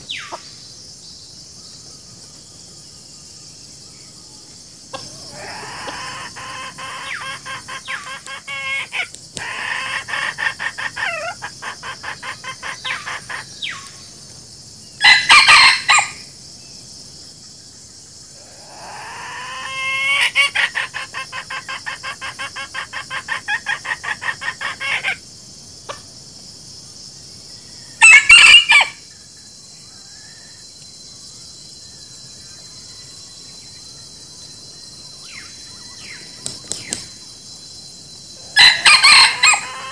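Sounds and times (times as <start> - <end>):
high buzz of insects: 0.0 - 39.9
chickens clucking: 4.9 - 13.6
loud chicken calls: 4.9 - 13.8, 15.0 - 16.2, 18.4 - 25.2, 28.0 - 29.0, 38.4 - 39.9.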